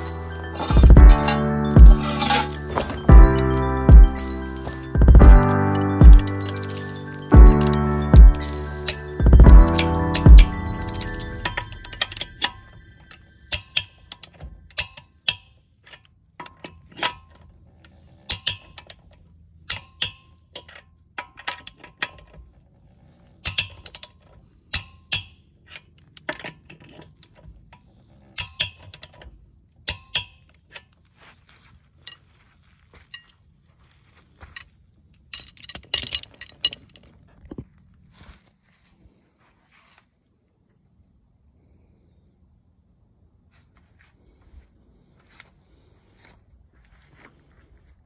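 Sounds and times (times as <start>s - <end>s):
metal clinks: 0.0s - 15.1s.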